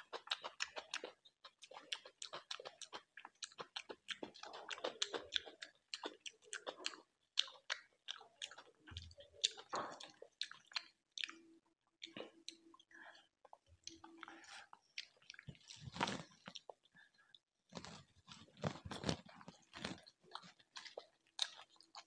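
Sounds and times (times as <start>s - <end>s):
person chewing with wet clicks: 0.0s - 22.0s.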